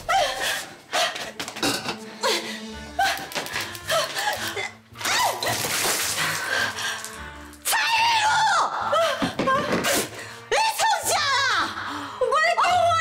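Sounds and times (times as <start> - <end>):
background music: 0.0 - 13.0
water splashing: 5.1 - 6.7.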